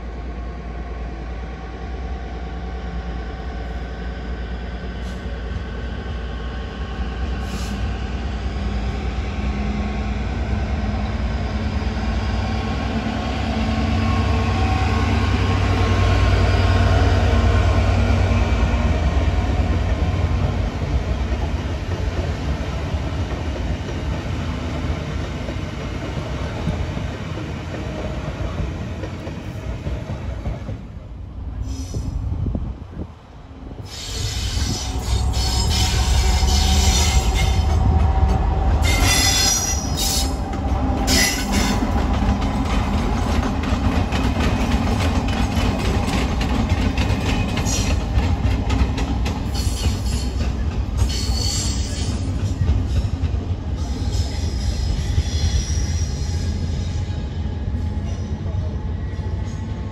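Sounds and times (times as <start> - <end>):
diesel locomotive rumbling: 0.0 - 59.9
train wheel squeal: 7.4 - 8.0, 31.6 - 32.2, 33.8 - 38.0, 38.8 - 42.0, 47.0 - 48.3, 49.3 - 59.9.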